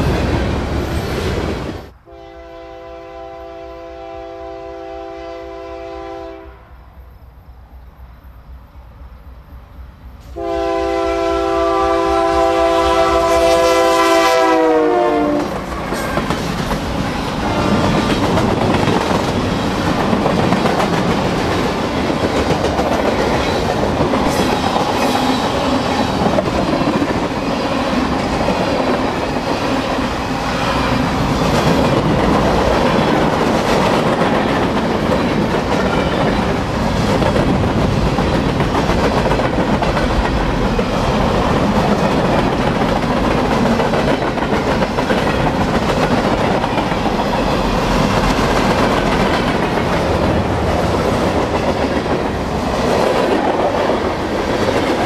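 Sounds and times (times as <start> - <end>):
train air horn: 2.0 - 6.8, 10.3 - 16.3, 17.4 - 18.2.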